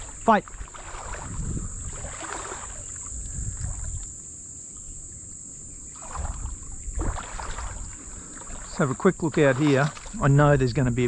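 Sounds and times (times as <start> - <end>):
legs sloshing through water: 0.0 - 4.1, 5.8 - 10.4
high-pitched insect drone: 0.0 - 11.0.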